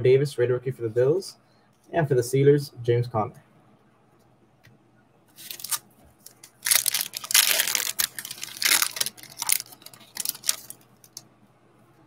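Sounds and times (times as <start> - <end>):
foil wrapper tearing and crinkling: 5.4 - 11.2.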